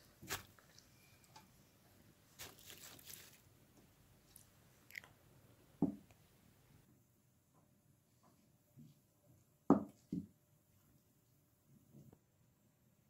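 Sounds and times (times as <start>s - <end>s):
soft squishing and rustling: 0.0s - 1.5s, 2.2s - 5.2s.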